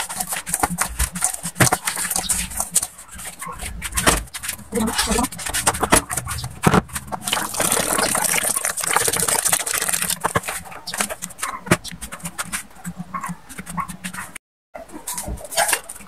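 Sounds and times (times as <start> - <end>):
hands squeezing wet pulp: 0.0 - 12.6
water pouring into metal bowl: 7.0 - 10.4.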